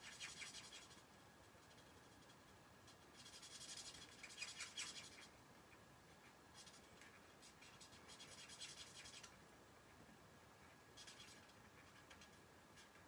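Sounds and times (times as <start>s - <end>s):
marker scratching on card: 0.0s - 1.0s, 1.6s - 5.3s, 6.6s - 9.3s, 11.0s - 12.3s.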